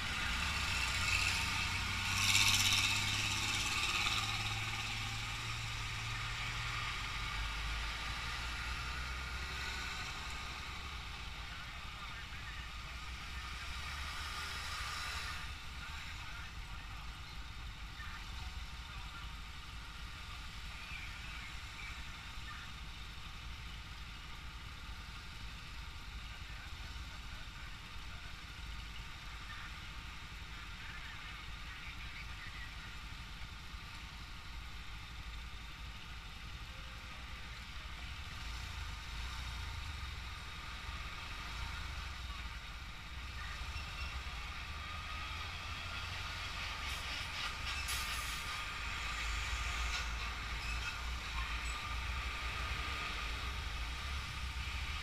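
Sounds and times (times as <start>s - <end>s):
heavy trucks passing: 0.0s - 11.5s, 38.2s - 55.0s
steady low traffic rumble: 0.0s - 55.0s.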